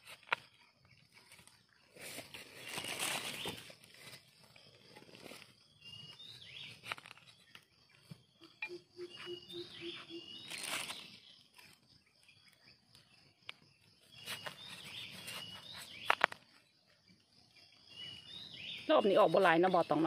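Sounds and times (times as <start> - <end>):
rustling and snapping mushrooms: 0.0 - 8.2, 10.3 - 11.9, 13.4 - 16.7
birds chirping: 0.6 - 20.0.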